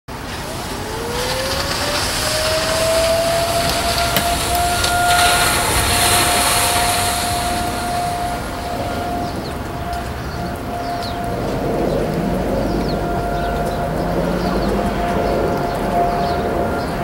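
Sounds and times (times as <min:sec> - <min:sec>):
background noise rush: 0:00.1 - 0:17.0
distant warning siren winding up: 0:00.1 - 0:17.0.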